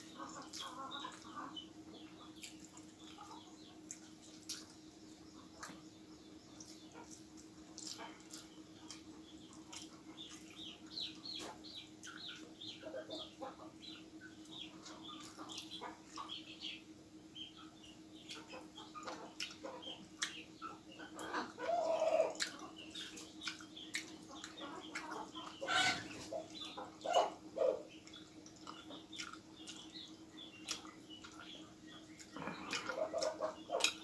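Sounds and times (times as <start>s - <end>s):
steady low hum: 0.0s - 34.0s
man chewing and lip-smacking: 2.2s - 4.9s, 6.5s - 12.3s, 18.2s - 21.2s, 22.3s - 25.6s, 28.0s - 34.0s.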